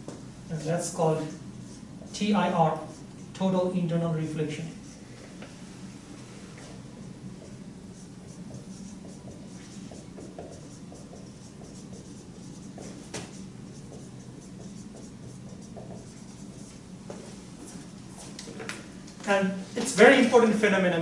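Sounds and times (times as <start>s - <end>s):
marker squeaking on whiteboard: 7.4s - 16.8s.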